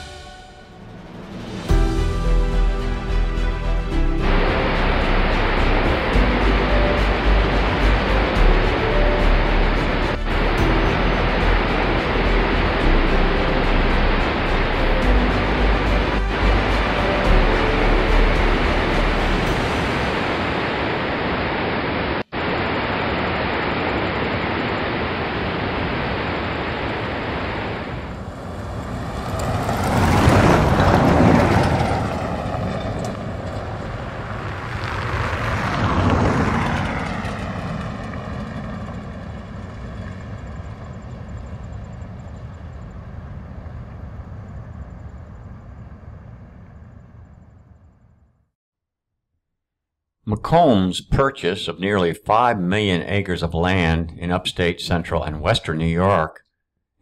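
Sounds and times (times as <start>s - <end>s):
road traffic rushing: 0.0s - 22.2s, 25.8s - 48.1s.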